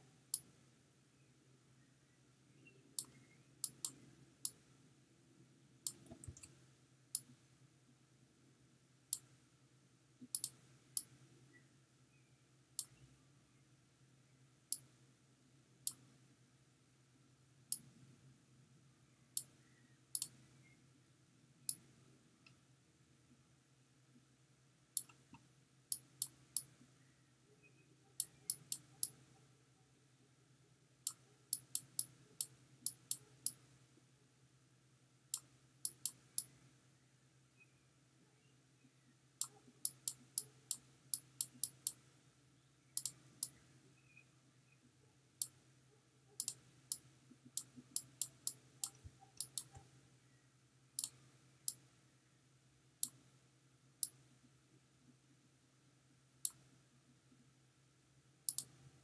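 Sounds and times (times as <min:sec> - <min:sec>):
faint low hum: 0:00.0 - 0:59.0
computer mouse clicking: 0:03.0 - 0:04.6, 0:05.8 - 0:06.6, 0:07.2 - 0:07.4, 0:10.2 - 0:11.2, 0:12.8 - 0:13.0, 0:15.8 - 0:16.1, 0:20.1 - 0:20.4, 0:25.0 - 0:26.8, 0:28.1 - 0:29.3, 0:31.0 - 0:33.7, 0:35.3 - 0:36.6, 0:39.4 - 0:42.1, 0:42.9 - 0:43.7, 0:45.4 - 0:45.6, 0:46.3 - 0:49.9, 0:51.0 - 0:51.9, 0:53.0 - 0:53.2, 0:56.4 - 0:56.7, 0:58.5 - 0:58.8.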